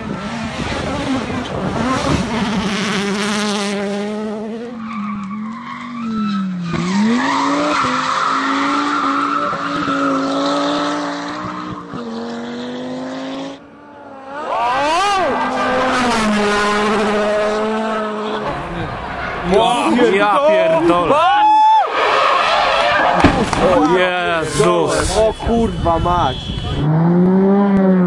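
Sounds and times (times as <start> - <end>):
rally car engines at full throttle: 0.0 - 28.0
tyres skidding and squealing: 3.9 - 12.5, 13.9 - 27.7.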